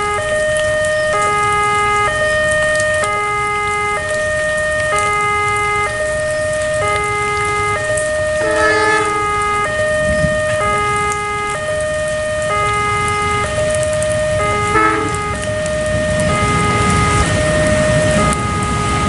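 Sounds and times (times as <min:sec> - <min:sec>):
heavy rain: 0:00.0 - 0:19.0
two-tone crossing alarm: 0:00.0 - 0:19.0
approaching train: 0:08.4 - 0:09.3.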